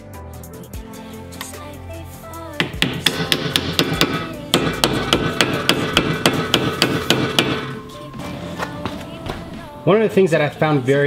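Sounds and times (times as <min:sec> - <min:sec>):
hammer tapping on metal: 0:02.6 - 0:07.8.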